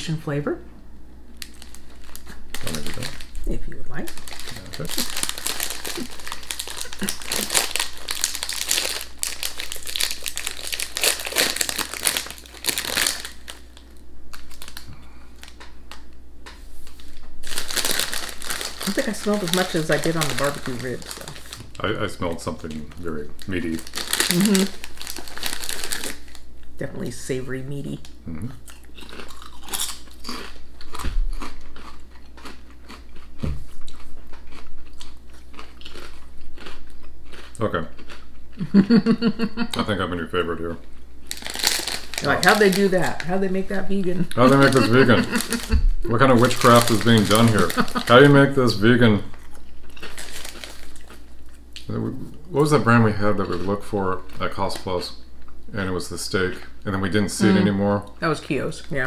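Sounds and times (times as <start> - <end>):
crisp packet crinkling: 1.4 - 16.1, 16.9 - 26.5, 41.2 - 43.6, 44.3 - 51.6.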